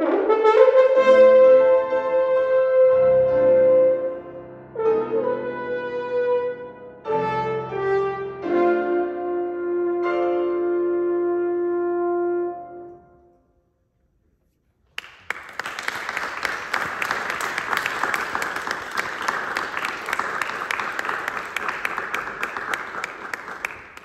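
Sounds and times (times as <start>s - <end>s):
audience applause: 15.0s - 24.0s.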